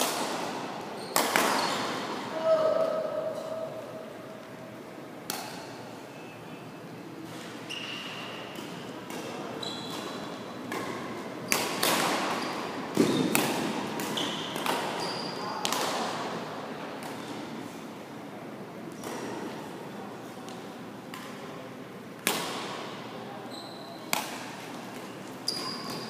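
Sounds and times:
rackets striking shuttlecocks: 0:00.0 - 0:01.9, 0:10.0 - 0:15.0
sneakers squeaking on court floor: 0:01.0 - 0:02.1, 0:07.6 - 0:11.6, 0:12.2 - 0:13.4, 0:14.0 - 0:15.6, 0:23.4 - 0:24.2, 0:24.9 - 0:26.0.

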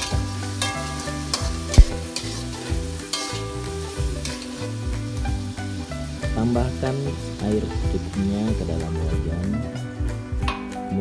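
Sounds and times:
metal spatula scraping wok: 0:00.0 - 0:06.1
oil sizzling: 0:00.0 - 0:11.0
sharp loud knock: 0:01.8 - 0:02.0.

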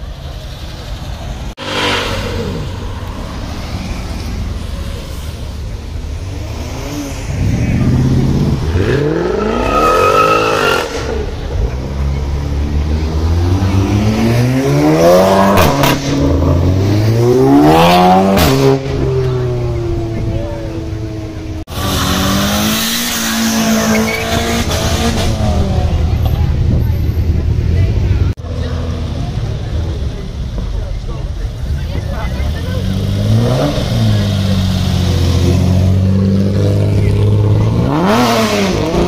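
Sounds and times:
car engines driving past: 0:00.0 - 0:39.0
car engine revving: 0:01.5 - 0:30.6, 0:31.5 - 0:39.0
car accelerating: 0:01.5 - 0:39.0.

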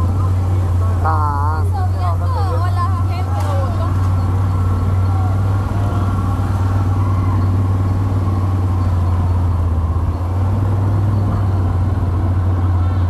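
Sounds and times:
quad bike engine droning: 0:00.0 - 0:13.0.

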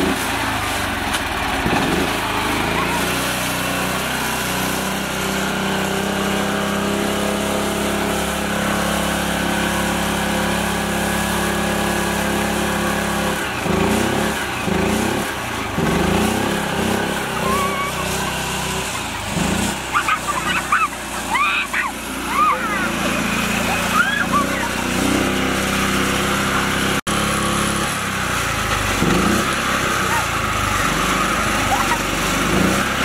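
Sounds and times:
small tractor engine revving: 0:00.0 - 0:33.0.

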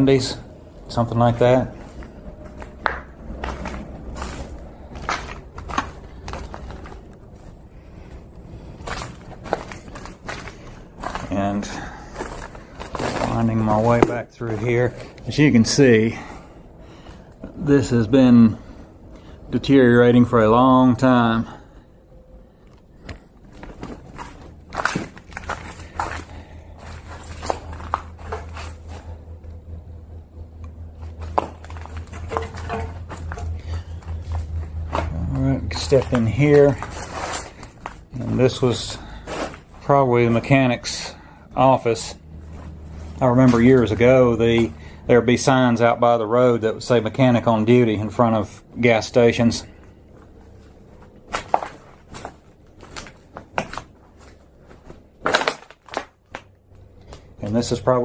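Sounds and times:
low steady hum: 0:00.0 - 0:58.0
footsteps crunching on debris: 0:01.7 - 0:15.5, 0:23.0 - 0:29.2, 0:30.9 - 0:45.9, 0:49.8 - 0:57.3.

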